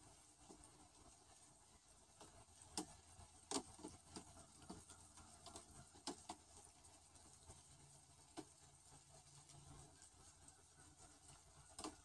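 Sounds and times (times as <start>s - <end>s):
faint light clicks and taps: 2.2s - 7.6s, 8.2s - 8.7s.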